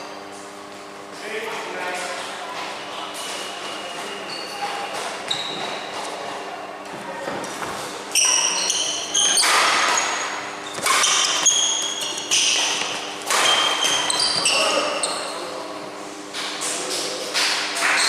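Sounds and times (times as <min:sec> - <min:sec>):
steady low hum: 0:00.0 - 0:17.8
shoes squeaking on court: 0:03.1 - 0:06.4, 0:07.3 - 0:15.5
racket striking shuttlecock: 0:10.8 - 0:11.5, 0:12.2 - 0:14.0.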